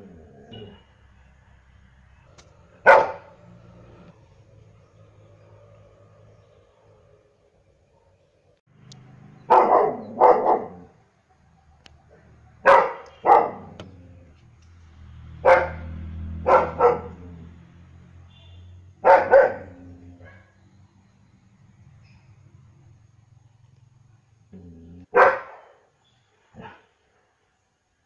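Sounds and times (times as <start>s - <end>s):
dog barking: 2.8s - 3.4s, 9.5s - 11.0s, 12.6s - 13.8s, 15.4s - 17.2s, 19.0s - 20.6s, 25.1s - 25.9s, 26.6s - 26.9s.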